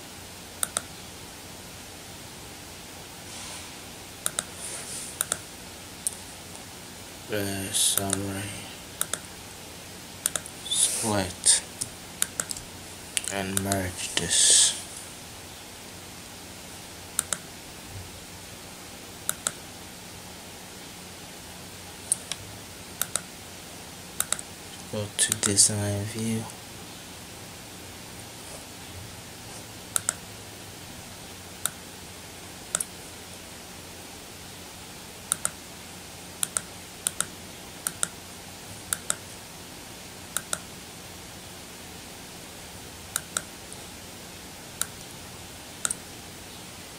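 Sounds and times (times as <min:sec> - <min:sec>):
faint hiss and hum: 0:00.0 - 0:46.9
computer mouse buttons clicking: 0:00.6 - 0:00.9, 0:04.2 - 0:04.5, 0:05.2 - 0:05.4, 0:09.0 - 0:09.2, 0:10.2 - 0:10.5, 0:12.2 - 0:12.6, 0:17.2 - 0:17.4, 0:19.3 - 0:19.6, 0:23.0 - 0:23.3, 0:24.2 - 0:24.5, 0:30.0 - 0:30.2, 0:35.3 - 0:35.6, 0:36.4 - 0:38.2, 0:38.9 - 0:39.2, 0:40.4 - 0:40.7, 0:43.1 - 0:43.5
mouse button clicking: 0:00.6 - 0:00.9, 0:04.2 - 0:04.5, 0:05.2 - 0:05.4, 0:09.0 - 0:09.2, 0:17.2 - 0:17.4.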